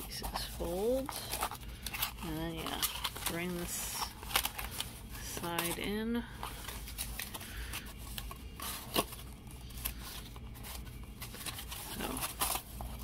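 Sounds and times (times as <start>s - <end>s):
cardboard scraping and rustling: 6.5s - 13.0s.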